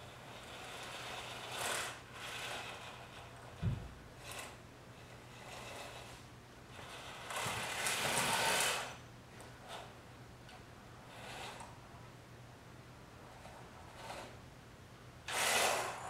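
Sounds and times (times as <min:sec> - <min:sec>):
small motors whirring: 0:00.3 - 0:03.5, 0:06.8 - 0:09.0, 0:15.3 - 0:16.0
low thump: 0:03.6 - 0:04.0.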